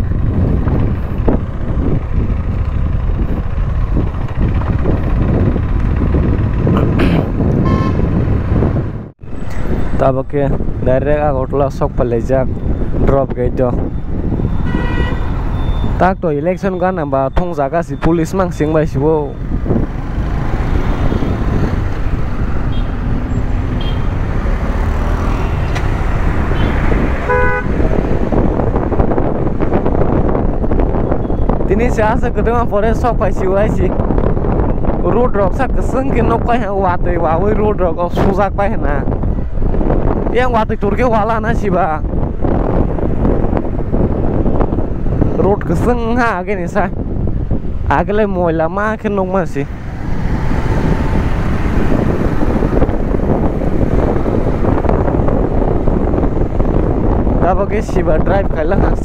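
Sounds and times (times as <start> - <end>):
motorcycle engine running: 0.0 - 9.0
wind noise on microphone: 0.0 - 59.0
brief beeping tone: 7.6 - 8.0, 15.5 - 16.0
vehicle horn honking: 7.6 - 8.1, 14.5 - 15.9, 22.7 - 23.0, 23.8 - 24.2, 26.5 - 27.8.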